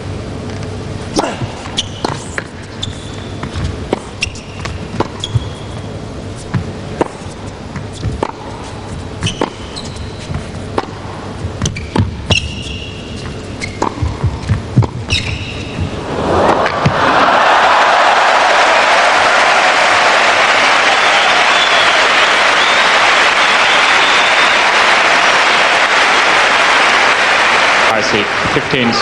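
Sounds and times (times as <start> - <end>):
shoe squeaks on court: 1.7 - 6.6, 7.8 - 10.5, 11.6 - 16.0
racket striking tennis ball: 3.4 - 5.7, 6.4 - 17.0
ball bouncing: 6.5 - 8.5, 9.2 - 16.0.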